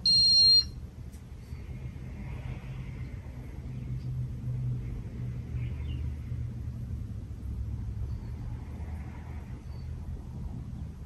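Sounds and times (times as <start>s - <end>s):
high electronic beep: 0.0s - 0.7s
ceiling fan motor humming: 0.0s - 11.0s.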